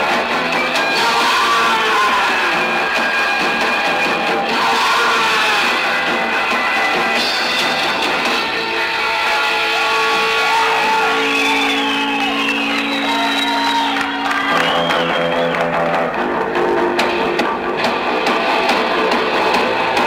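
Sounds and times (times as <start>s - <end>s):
punk rock band playing live: 0.0s - 20.0s
long held guitar notes: 9.0s - 17.9s.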